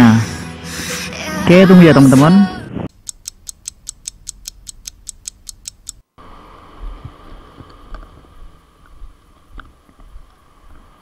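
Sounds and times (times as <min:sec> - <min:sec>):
clock ticking: 0:02.9 - 0:06.0.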